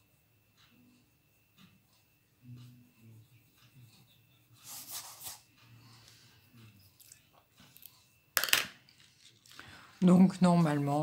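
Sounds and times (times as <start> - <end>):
coloured pencil scratching paper: 4.6 - 5.5.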